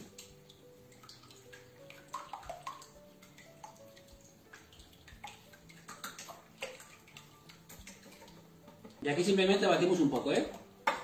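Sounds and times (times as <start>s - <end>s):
utensil beating eggs in bowl: 1.0s - 9.0s.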